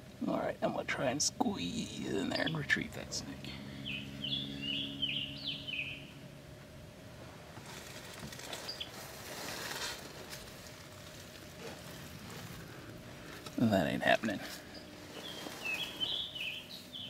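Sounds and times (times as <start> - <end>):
bird chirping: 1.7 - 6.2, 8.5 - 9.0, 13.6 - 17.0
rustling and scraping: 7.2 - 17.0.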